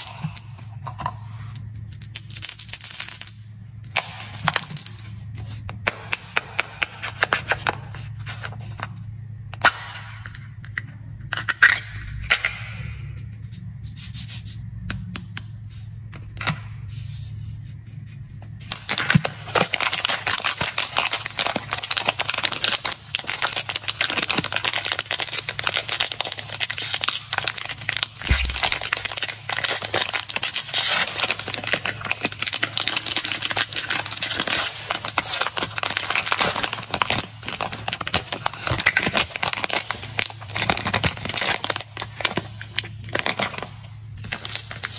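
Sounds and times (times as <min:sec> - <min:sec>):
foil wrapper crinkling and tearing: 0:18.7 - 0:44.9.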